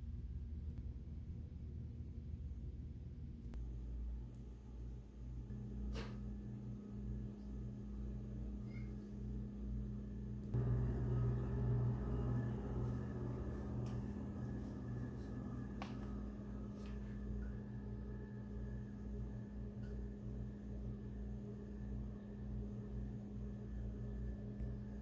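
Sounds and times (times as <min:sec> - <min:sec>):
low machine hum: 0:00.0 - 0:25.0.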